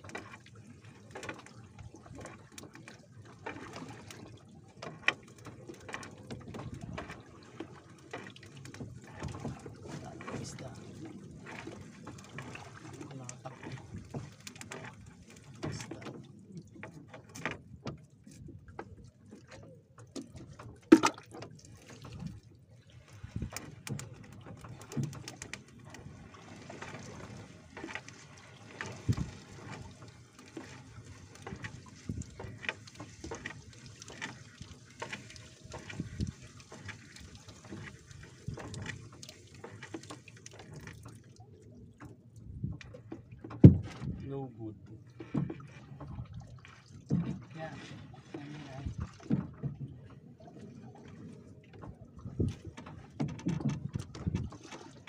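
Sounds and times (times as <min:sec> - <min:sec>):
water splashing and dripping: 0:00.0 - 0:44.3, 0:45.1 - 0:55.0
knocks on boat: 0:20.8 - 0:21.4, 0:42.6 - 0:44.2, 0:47.0 - 0:47.5, 0:48.8 - 0:50.0, 0:52.4 - 0:54.6.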